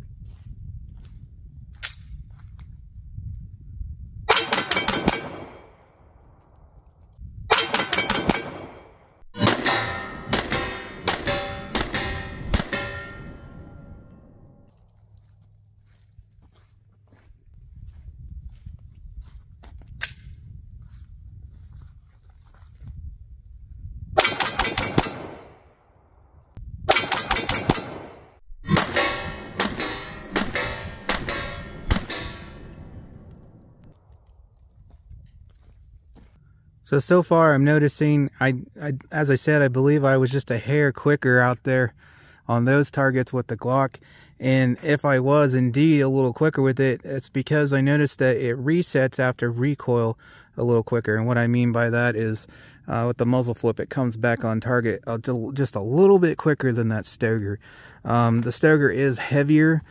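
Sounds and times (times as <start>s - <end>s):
pistol shots: 4.3s - 6.3s, 7.5s - 13.0s, 24.2s - 25.7s, 26.9s - 33.7s.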